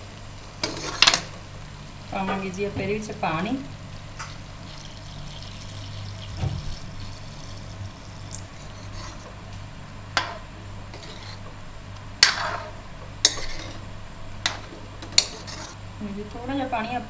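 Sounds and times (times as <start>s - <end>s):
water pouring into gravy: 4.3s - 8.6s.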